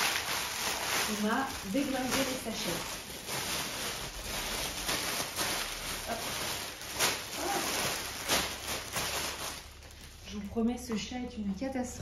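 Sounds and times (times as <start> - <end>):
plastic bags tearing open: 0.0 - 10.4
plastic packaging crinkling: 0.0 - 10.9.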